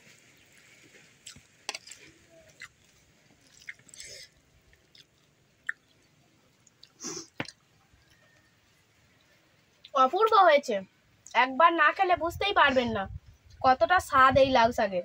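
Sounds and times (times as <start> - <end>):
chewing: 0.1 - 8.5.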